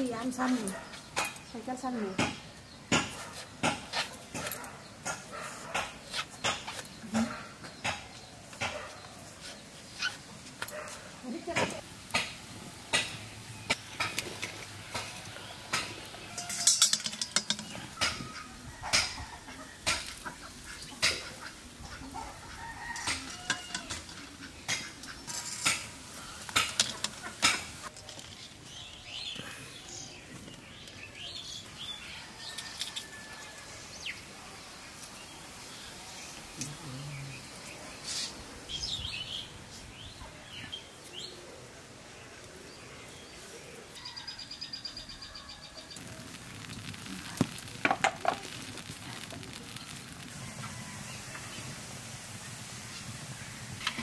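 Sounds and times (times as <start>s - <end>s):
wire skimmer clinking on cookware: 16.3s - 18.2s.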